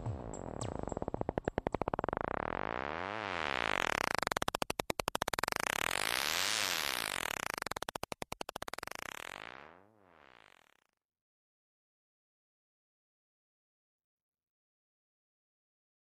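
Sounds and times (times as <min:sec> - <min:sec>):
pulsing buzzy synthesizer tone: 0:00.0 - 0:10.8.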